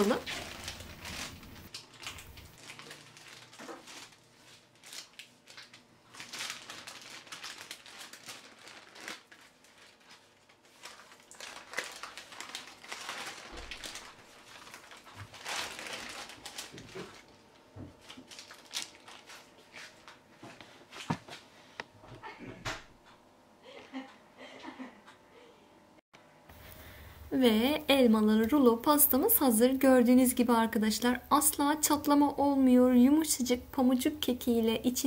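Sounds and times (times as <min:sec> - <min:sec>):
baking paper crinkling: 0:00.0 - 0:21.4.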